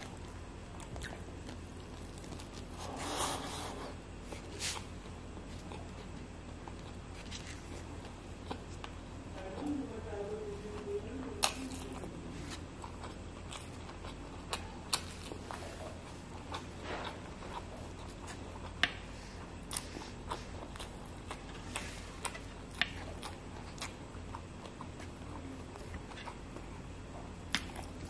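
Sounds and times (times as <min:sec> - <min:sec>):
faint low hum: 0:00.0 - 0:28.0
chewing with wet lip smacks: 0:04.3 - 0:09.7, 0:11.4 - 0:28.0.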